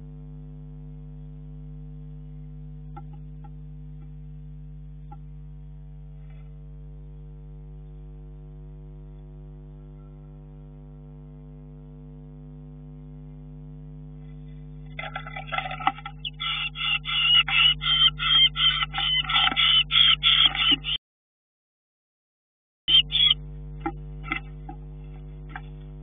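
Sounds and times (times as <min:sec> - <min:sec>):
electrical hum: 0:00.0 - 0:21.0, 0:22.9 - 0:26.0
birds scuffling in a box: 0:14.5 - 0:21.0.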